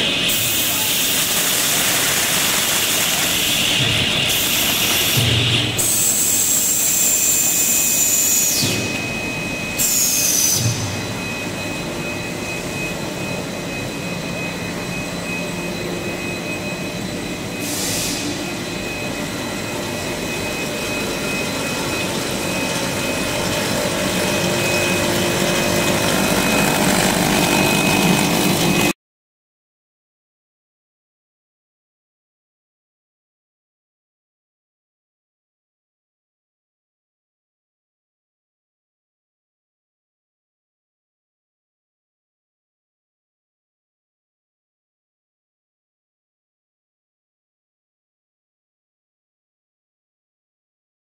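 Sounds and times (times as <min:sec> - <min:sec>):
machine motors whirring and hissing: 0:00.0 - 0:28.9
constant high whine: 0:10.8 - 0:28.9.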